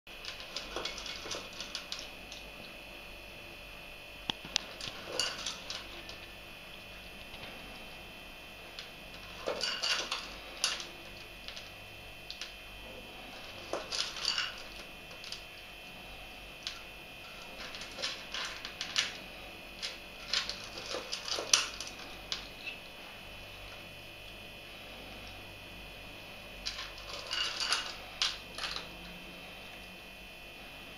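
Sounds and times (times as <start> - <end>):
cat crunching dry kibble: 4.3 - 6.4, 8.6 - 12.6, 13.2 - 15.6, 16.6 - 22.8, 26.6 - 29.9.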